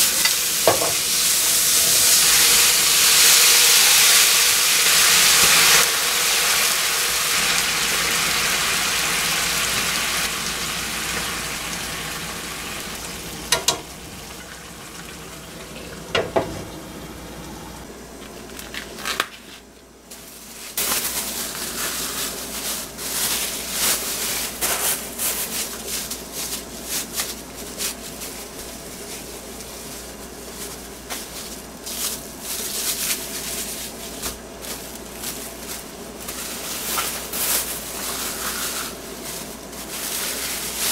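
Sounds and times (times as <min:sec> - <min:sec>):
liquid sizzling in frying pan: 0:00.0 - 0:16.8
plastic crinkling: 0:18.2 - 0:40.9.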